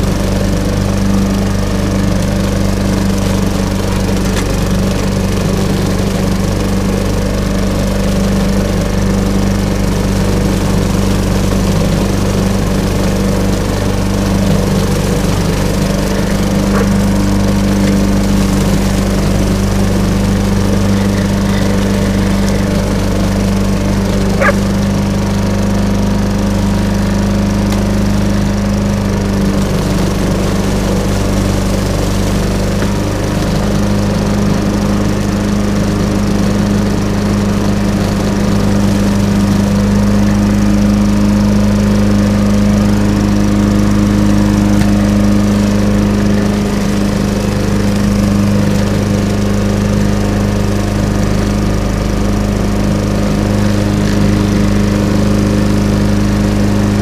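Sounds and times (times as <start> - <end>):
lawnmower engine running: 0.0 - 57.0.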